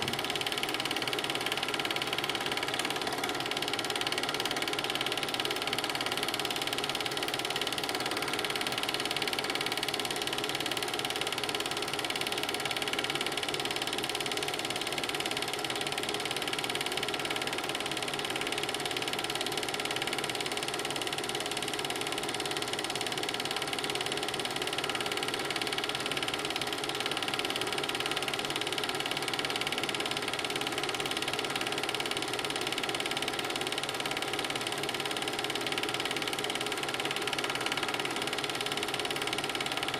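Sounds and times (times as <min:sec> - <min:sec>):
film projector whirring and rattling: 0:00.0 - 0:39.9.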